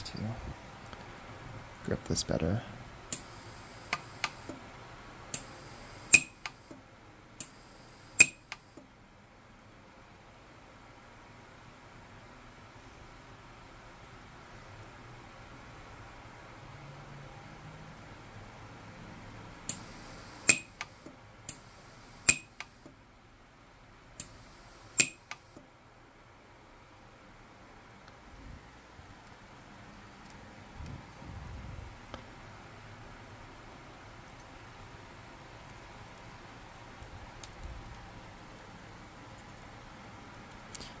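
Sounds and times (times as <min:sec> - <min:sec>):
faint high whine: 0:01.9 - 0:04.6, 0:05.3 - 0:06.8, 0:07.4 - 0:08.8, 0:19.7 - 0:22.9, 0:24.2 - 0:25.6
welder pulses snapping: 0:05.4 - 0:06.8, 0:07.4 - 0:08.7, 0:19.7 - 0:22.8, 0:24.2 - 0:25.5.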